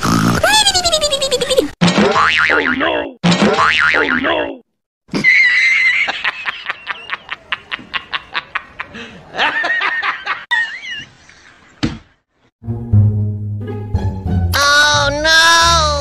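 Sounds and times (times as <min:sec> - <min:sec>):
high-pitched snickering laughter: 0:00.4 - 0:01.7.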